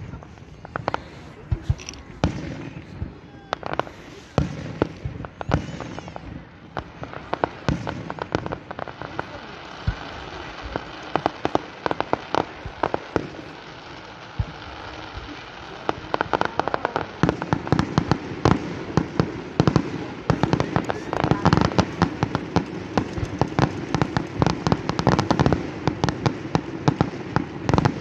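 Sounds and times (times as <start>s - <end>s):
fireworks bangs and crackles: 0.0s - 28.0s.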